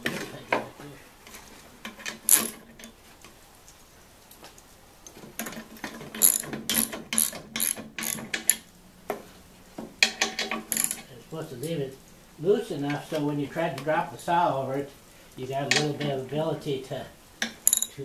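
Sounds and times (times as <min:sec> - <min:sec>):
ratchet wrench clicking: 0:06.2 - 0:08.6, 0:17.6 - 0:17.9.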